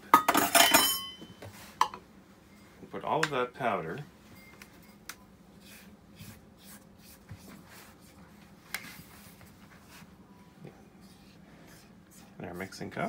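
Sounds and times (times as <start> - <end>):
faint brushing and scraping: 4.8 - 13.0.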